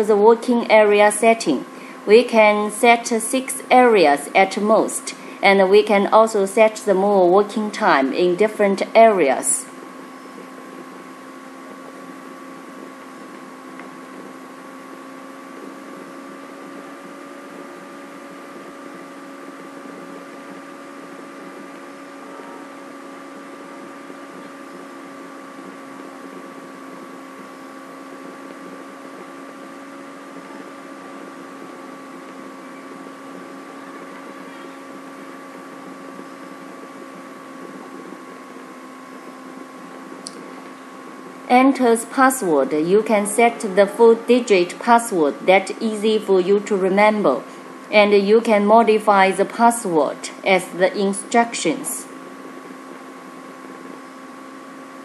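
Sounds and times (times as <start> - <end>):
steady electrical hum: 0.0 - 55.0.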